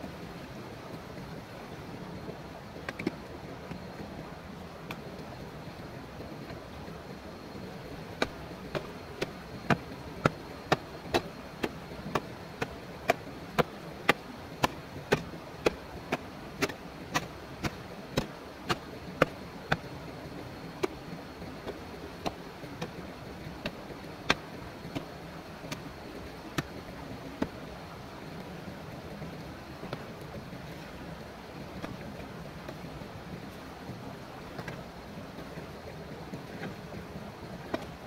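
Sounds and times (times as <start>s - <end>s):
steady background hiss: 0.0s - 38.0s
sharp chopping strikes: 8.2s - 19.8s.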